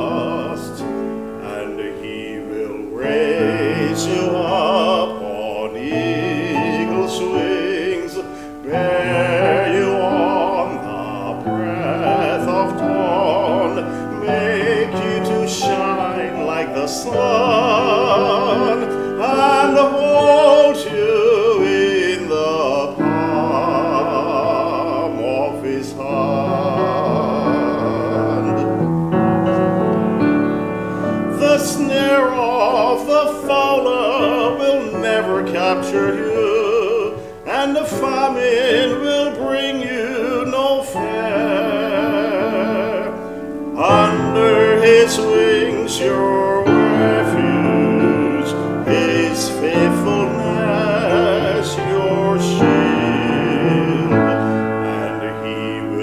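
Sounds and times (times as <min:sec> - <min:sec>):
grand piano: 0:00.0 - 0:56.0
man singing operatically: 0:00.0 - 0:56.0.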